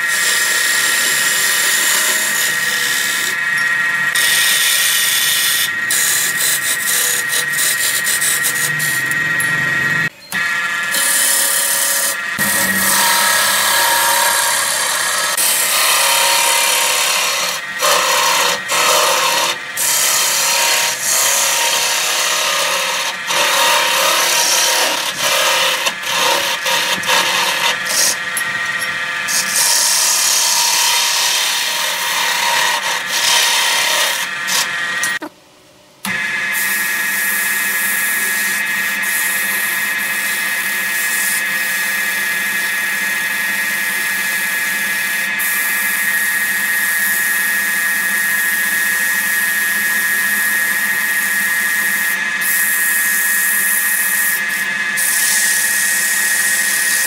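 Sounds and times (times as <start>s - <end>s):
lathe tool scraping wood: 0.0s - 35.3s, 51.7s - 57.0s.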